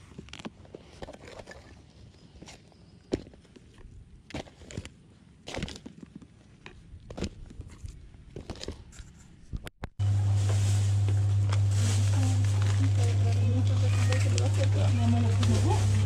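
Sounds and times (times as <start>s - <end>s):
loud steady low hum: 10.0s - 16.0s.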